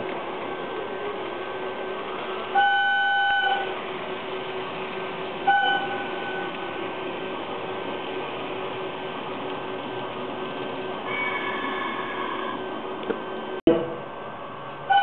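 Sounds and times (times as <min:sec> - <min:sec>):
model train hum and whirr: 0:00.0 - 0:15.0
locomotive-style horn: 0:05.4 - 0:06.6.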